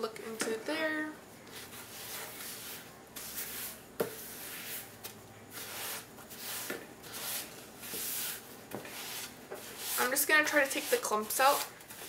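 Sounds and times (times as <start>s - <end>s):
spatula scraping mixing bowl: 5.5s - 12.0s.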